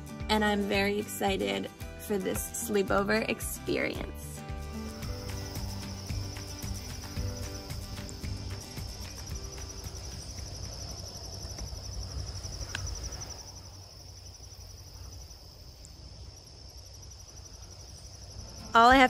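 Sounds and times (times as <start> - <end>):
crickets trilling: 3.8 - 19.0.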